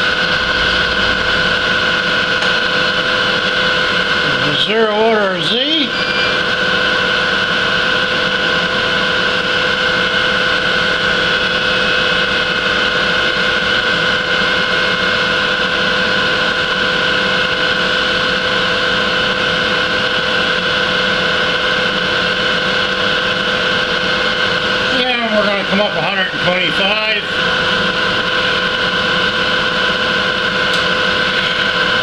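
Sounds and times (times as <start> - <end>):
milling machine cutting metal: 0.0 - 32.0.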